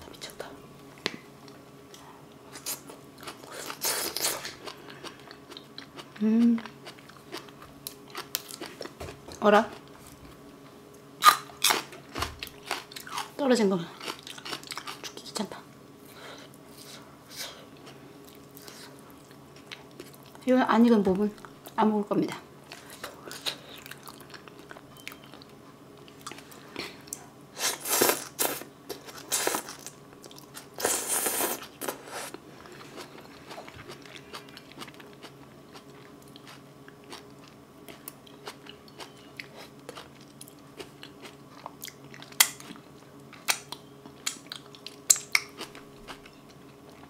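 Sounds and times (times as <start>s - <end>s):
person chewing food: 1.4s - 10.0s, 11.2s - 13.3s, 14.0s - 15.2s, 22.6s - 47.0s.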